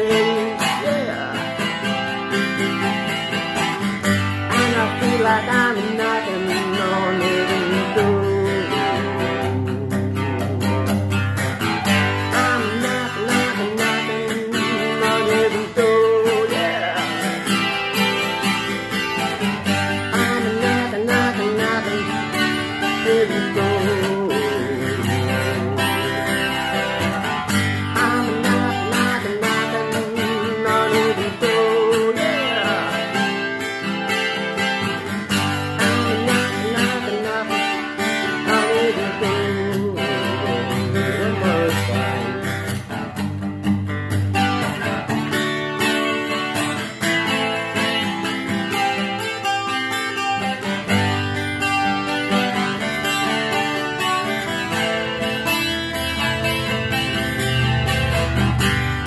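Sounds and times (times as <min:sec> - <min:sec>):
man singing: 0:00.0 - 0:43.1
acoustic guitar strumming: 0:00.0 - 0:59.0.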